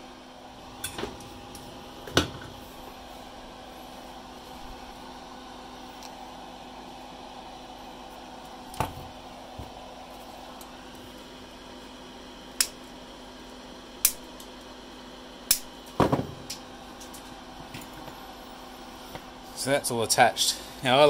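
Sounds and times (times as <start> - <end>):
side cutters snipping wires: 12.6 - 12.8, 14.0 - 14.5, 15.5 - 15.7.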